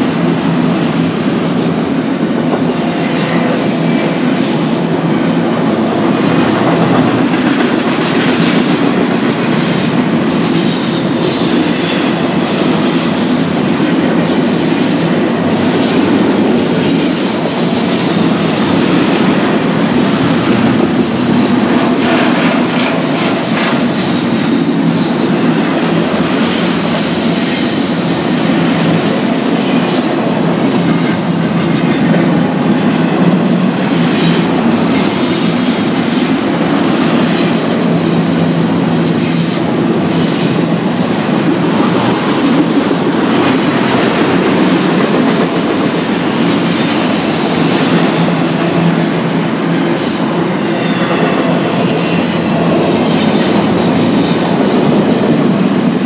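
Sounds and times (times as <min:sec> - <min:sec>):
train wheels rumbling on rail: 0:00.0 - 0:56.0
high wheel squeal: 0:02.5 - 0:05.7, 0:49.8 - 0:56.0.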